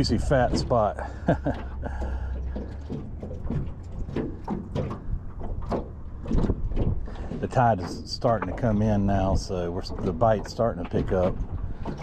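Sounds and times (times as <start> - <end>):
light knocks and clatters: 0.0 - 12.0.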